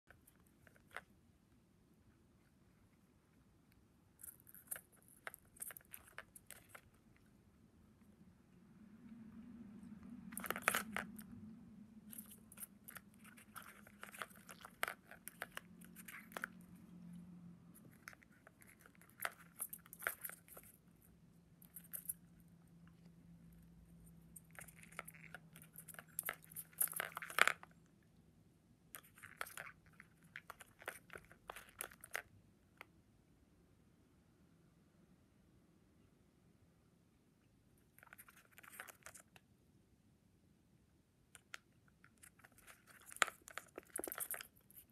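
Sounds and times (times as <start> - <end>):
faint low hum: 0.0 - 44.9
bird beak clicks and rustles: 10.0 - 22.4, 24.0 - 27.8, 38.0 - 39.4, 41.4 - 44.9.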